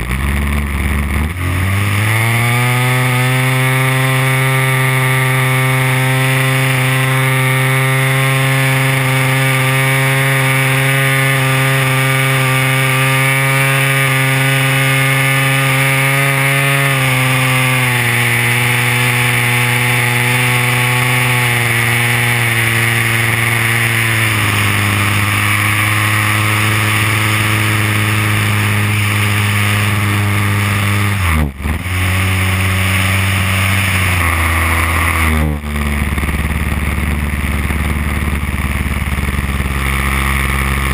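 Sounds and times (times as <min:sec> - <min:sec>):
model plane engine in flight: 0:00.0 - 0:40.9.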